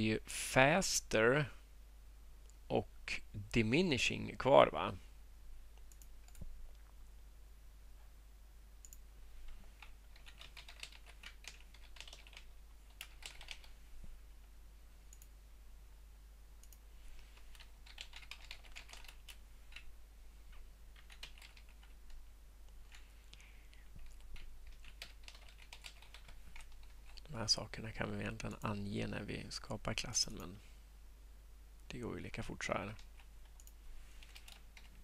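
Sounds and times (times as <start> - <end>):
faint computer keyboard typing: 5.7 - 7.0, 8.8 - 13.8, 15.1 - 15.4, 16.6 - 19.9, 20.5 - 27.3, 32.8 - 35.0.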